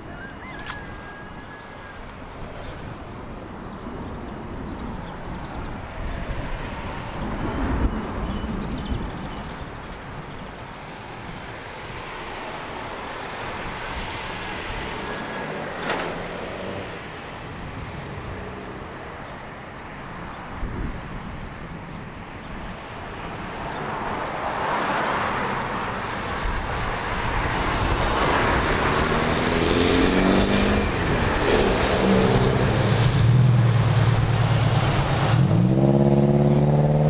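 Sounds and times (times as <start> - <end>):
street traffic noise: 0.0 - 37.0
vehicle passing loudly: 11.3 - 19.3, 24.0 - 37.0.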